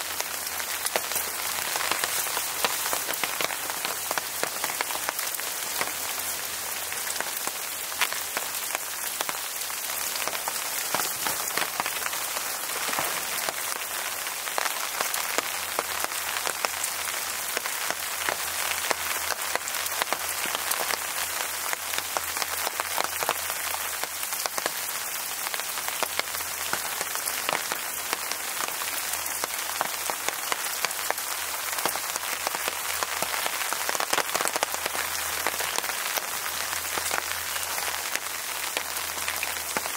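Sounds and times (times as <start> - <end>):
raindrops striking close by: 0.0 - 39.9
steady rainfall: 0.0 - 39.9.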